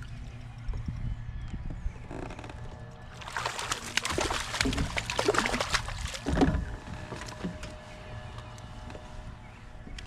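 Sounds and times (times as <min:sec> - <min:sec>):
fish splashing at water surface: 0:03.2 - 0:06.3.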